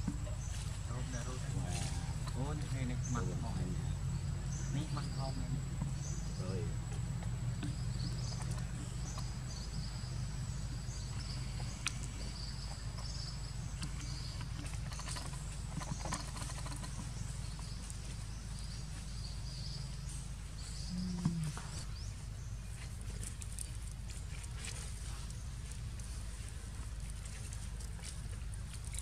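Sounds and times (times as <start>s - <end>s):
small clicks and rustles: 6.9s - 20.7s, 21.4s - 29.0s.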